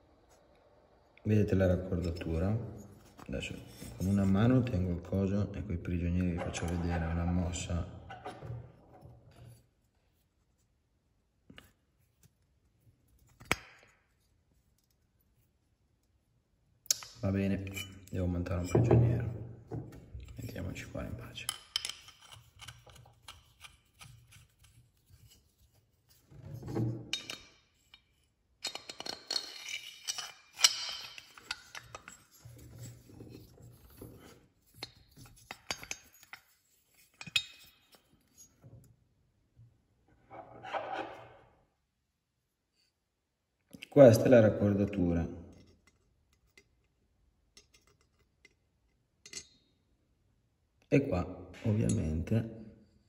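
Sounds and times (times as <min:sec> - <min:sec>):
faint rubbing of metal parts: 0:01.8 - 0:05.1, 0:20.1 - 0:38.7.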